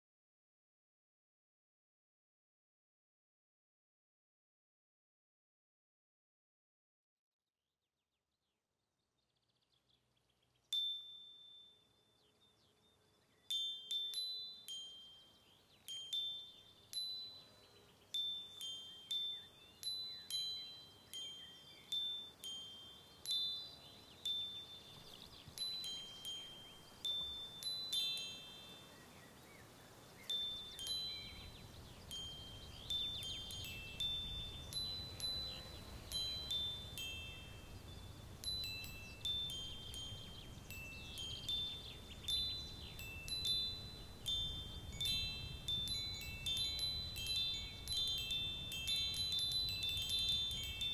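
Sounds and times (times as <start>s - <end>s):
high bell-like chime tones: 32.2s - 41.9s.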